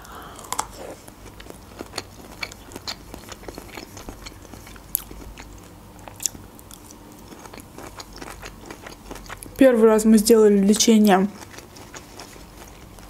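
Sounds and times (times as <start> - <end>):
crunchy bites: 0.1 - 9.6
wet chewing: 0.2 - 9.6, 11.0 - 13.0.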